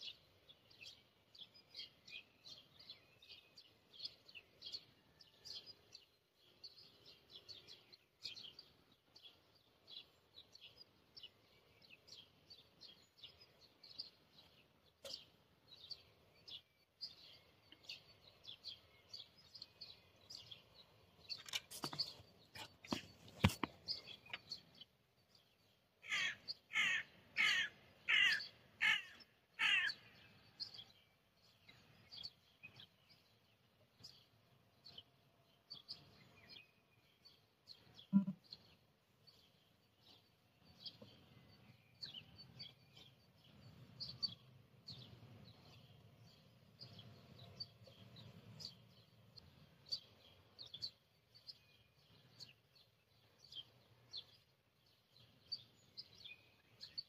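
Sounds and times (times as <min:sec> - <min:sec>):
birds chirping: 0:00.0 - 0:57.0
harsh bird calls: 0:26.0 - 0:30.9, 0:37.7 - 0:38.8.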